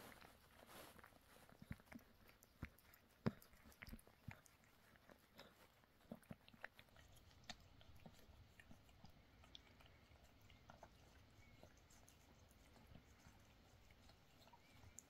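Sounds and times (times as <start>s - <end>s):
cat licking wetly: 0.0s - 15.0s.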